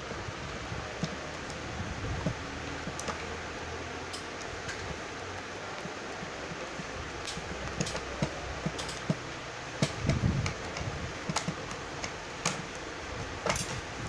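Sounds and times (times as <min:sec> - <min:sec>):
steady background hum: 0:00.0 - 0:14.0
tool tapping plastic and metal: 0:05.8 - 0:12.8, 0:13.4 - 0:13.9.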